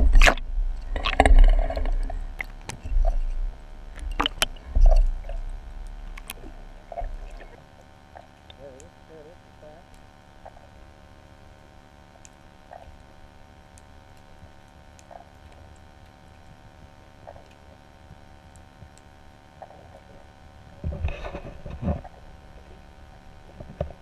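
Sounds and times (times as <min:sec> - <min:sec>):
underwater low hum: 0:00.0 - 0:24.0
faint ticks: 0:00.2 - 0:24.0.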